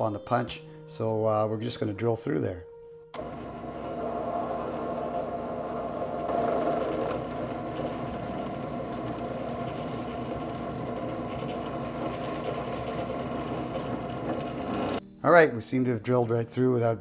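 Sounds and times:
drill press drilling metal: 0:03.2 - 0:15.0.

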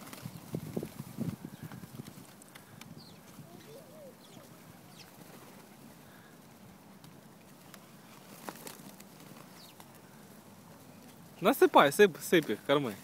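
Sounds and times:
pigeons pecking and stepping: 0:00.0 - 0:13.0
wings fluttering: 0:00.0 - 0:13.0.

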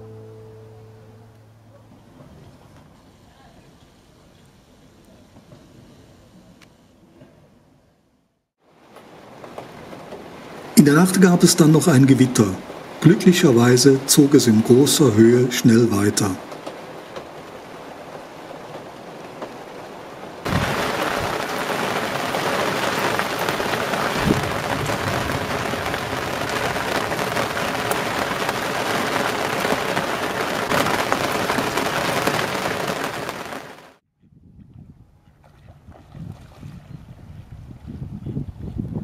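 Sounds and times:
rain falling on a boat: 0:08.6 - 0:34.0.

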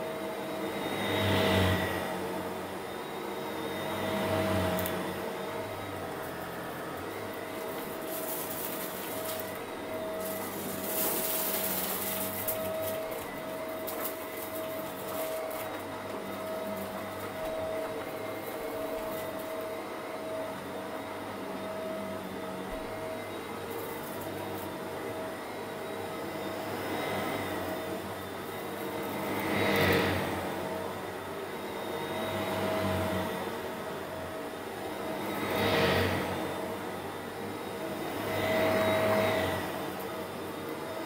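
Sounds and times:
vacuum cleaner motor humming: 0:00.0 - 0:41.0
hissing with crackles: 0:07.6 - 0:09.6, 0:10.2 - 0:15.9.

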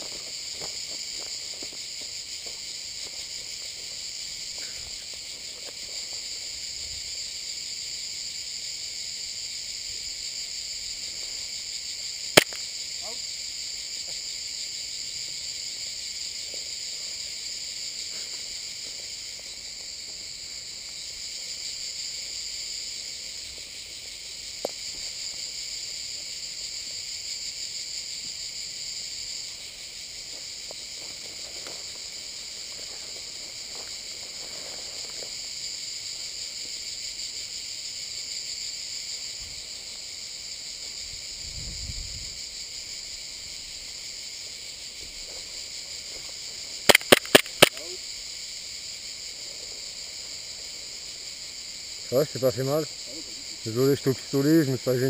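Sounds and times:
insects chirring: 0:00.0 - 0:55.0
sharp click: 0:12.4 - 0:12.6, 0:46.9 - 0:47.8
rustling of brush: 0:30.8 - 0:35.6.

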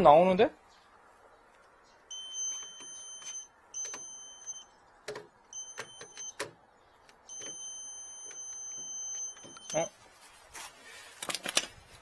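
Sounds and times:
voltage tester beeping: 0:02.0 - 0:06.5, 0:07.1 - 0:09.9
tester tapping on terminals: 0:02.0 - 0:09.9.

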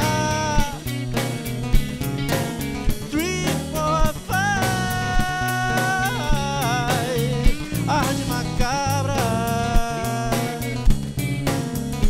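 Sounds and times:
man singing: 0:00.0 - 0:01.0, 0:03.1 - 0:10.9
acoustic guitar: 0:00.0 - 0:12.0
drum kit: 0:00.0 - 0:12.0.

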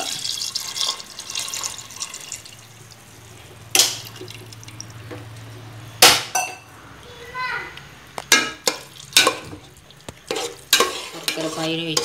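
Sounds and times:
syrup pouring and splashing: 0:00.0 - 0:05.5.

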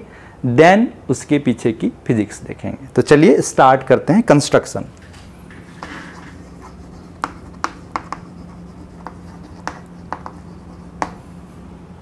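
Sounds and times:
chalk writing on a blackboard: 0:05.8 - 0:11.2.

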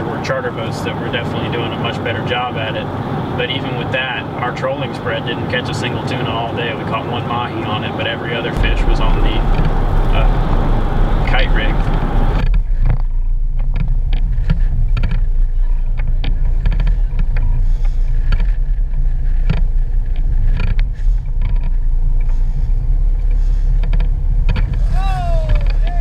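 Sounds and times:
boat engines rumbling: 0:00.0 - 0:12.8, 0:15.5 - 0:26.0
wind on microphone: 0:08.6 - 0:12.9.

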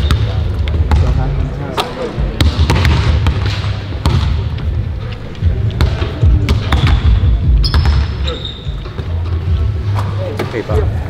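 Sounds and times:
basketballs bouncing on hardwood: 0:02.4 - 0:04.6, 0:05.8 - 0:08.3.

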